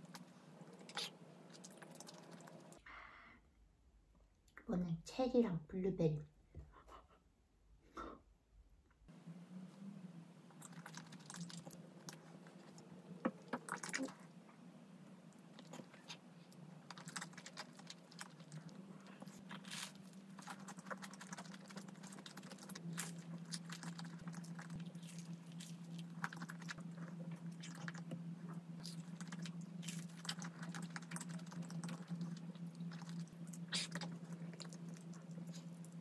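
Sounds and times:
chewing and crunching: 0.0 - 2.8, 10.5 - 14.4, 15.3 - 36.0
low hum: 6.2 - 36.0.

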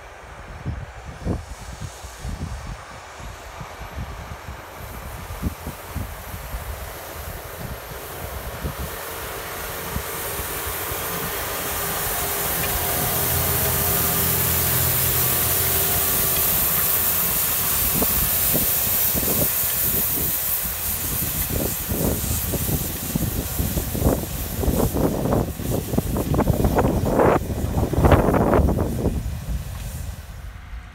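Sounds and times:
seed drill hissing: 1.2 - 30.9
tractor engine hum: 4.0 - 30.9.

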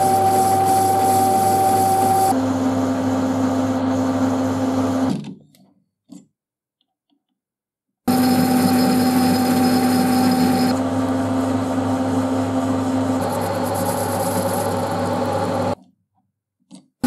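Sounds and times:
metal lathe running: 0.0 - 4.9, 8.1 - 15.8
lathe spindle winding down: 8.1 - 15.8.

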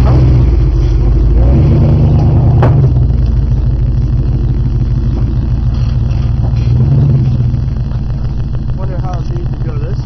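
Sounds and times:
pickup engine rumbling: 0.0 - 10.0.

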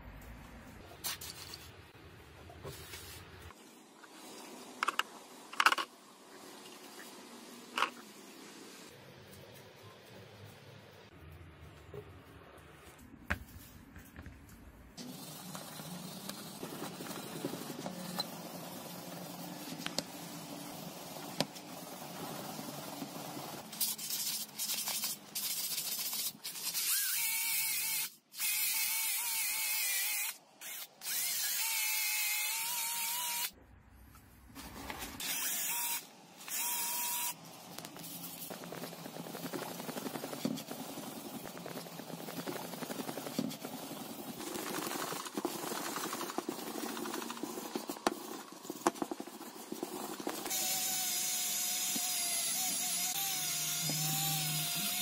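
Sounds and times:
cordless drill whining: 35.2 - 37.4, 50.4 - 55.0.

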